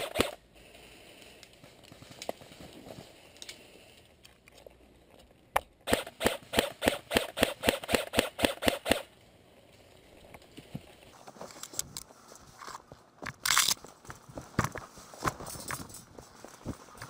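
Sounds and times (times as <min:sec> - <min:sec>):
airsoft gunshots: 0:00.0 - 0:00.4, 0:05.8 - 0:09.1.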